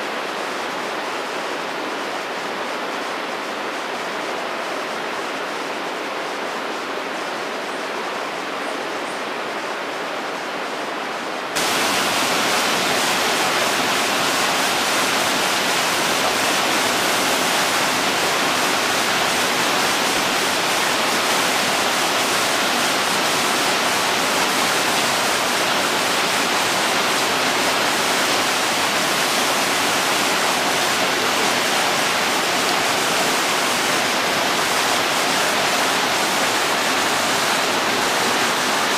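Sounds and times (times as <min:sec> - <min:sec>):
small waterfall cascading: 0:00.0 - 0:38.9
water rushing over rocks: 0:11.6 - 0:38.9.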